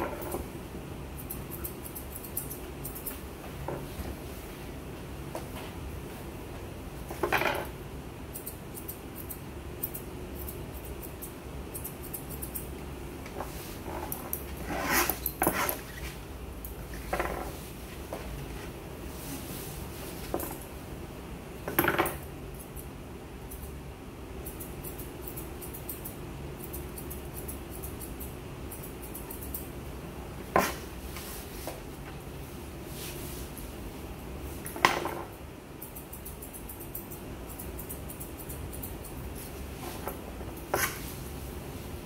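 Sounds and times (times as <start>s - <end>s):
steady low hum: 0.0s - 42.0s
grooming shears snipping: 35.8s - 41.2s.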